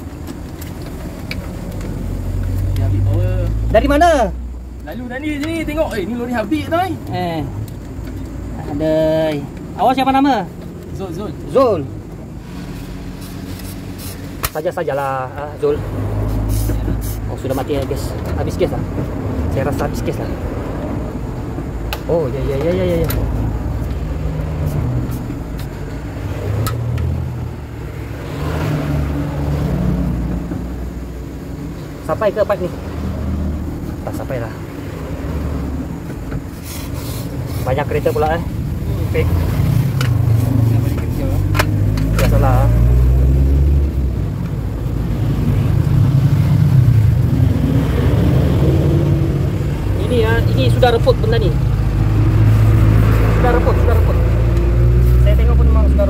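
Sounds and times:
traffic engine rumble: 0.0 - 56.0
vehicle passing close: 11.7 - 56.0
tyre hiss: 12.4 - 14.6, 16.0 - 17.5, 36.5 - 38.8.

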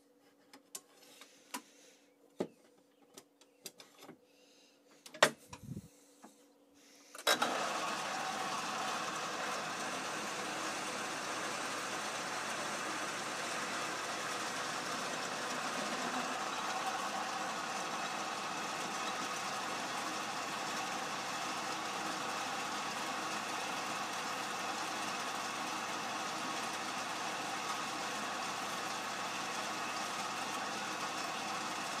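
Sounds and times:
lathe running: 7.3 - 32.0.

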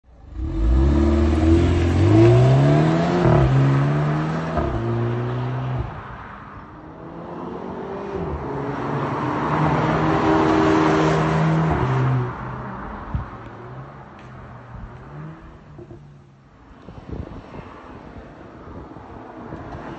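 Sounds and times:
car engine accelerating hard: 0.2 - 5.8.

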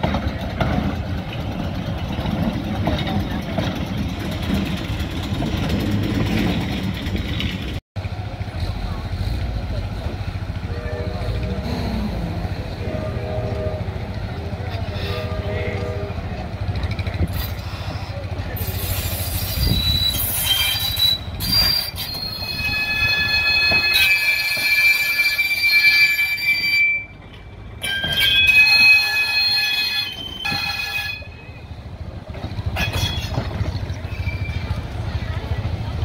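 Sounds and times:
trolley wheels squealing: 16.7 - 36.0.

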